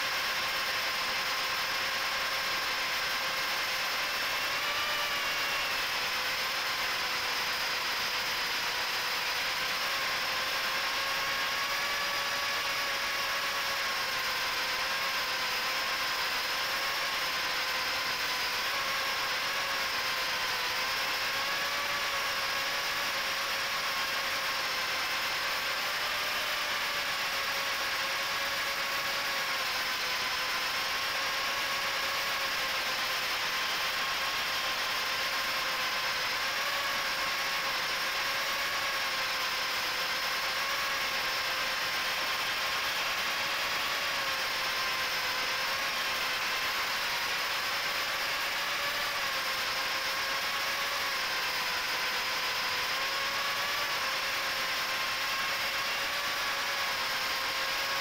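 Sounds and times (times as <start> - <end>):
drone motors buzzing whine: 0.0 - 58.0.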